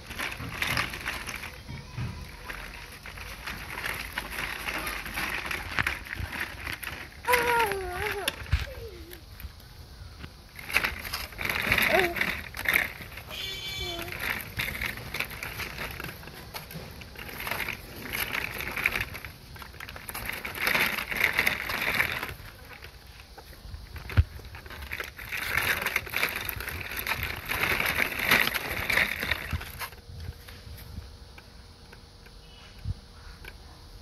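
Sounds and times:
plastic wheels rattling over bricks: 0.0s - 32.7s.

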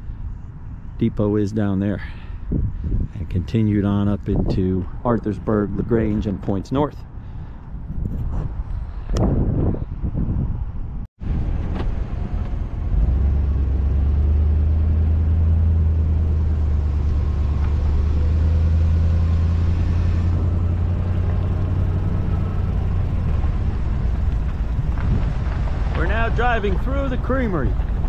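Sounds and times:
car driving on dirt track: 11.2s - 28.0s.

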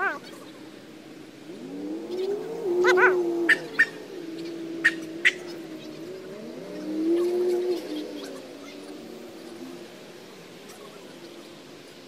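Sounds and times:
dog howling: 1.5s - 5.2s.

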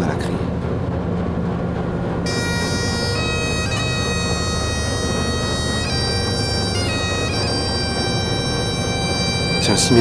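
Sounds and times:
boat engine rumble: 0.0s - 10.0s
bagpipe music: 2.2s - 10.0s.

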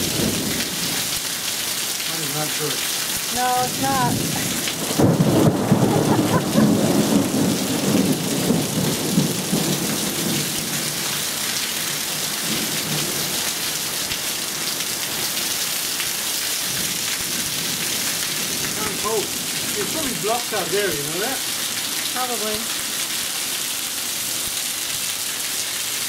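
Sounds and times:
low rumble of thunder: 0.0s - 1.1s, 3.7s - 11.1s
heavy rain on screen roof: 0.0s - 26.0s
water pouring off roof: 0.0s - 26.0s.

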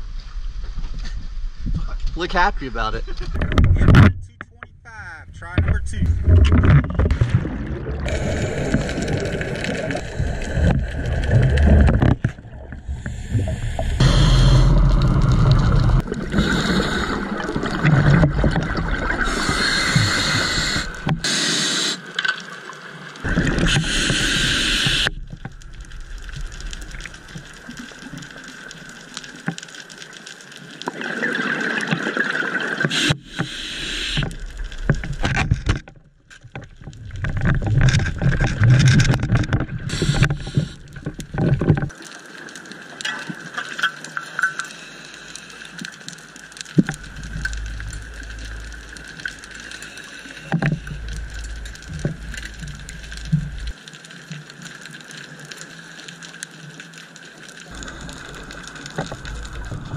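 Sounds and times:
gurgling exhaled bubbles: 6.0s - 21.3s, 23.2s - 28.3s, 30.8s - 35.2s, 46.6s - 53.8s, 57.7s - 59.9s
regulator hissing: 13.0s - 17.4s, 19.2s - 22.0s, 23.6s - 25.2s, 32.9s - 34.2s.

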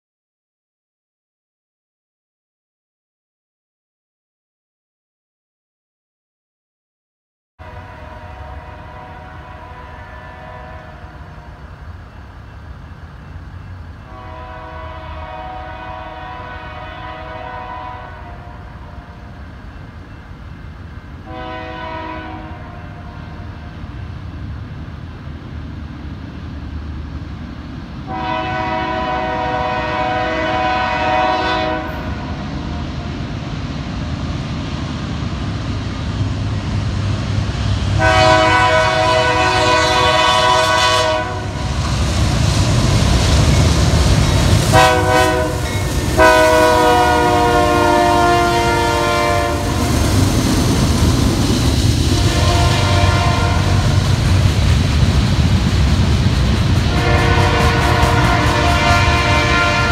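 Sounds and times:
locomotive air horn blasts: 7.6s - 11.6s, 14.0s - 19.3s, 21.2s - 23.8s, 28.1s - 32.8s, 38.0s - 41.8s, 44.6s - 50.1s, 52.1s - 54.0s, 56.9s - 59.9s
low rumble of train: 7.6s - 59.9s.

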